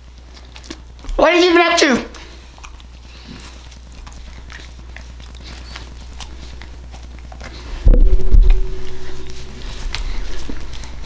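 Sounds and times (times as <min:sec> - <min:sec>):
soft chewing: 0:00.0 - 0:01.2, 0:02.1 - 0:11.0
loud low steady tone: 0:07.9 - 0:10.7.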